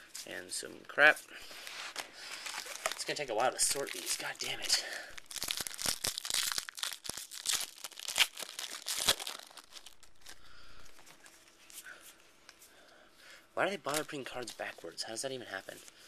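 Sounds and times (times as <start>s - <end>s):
cards rustling: 1.5s - 11.8s
foil wrapper tearing and crinkling: 2.3s - 4.4s, 5.2s - 11.1s.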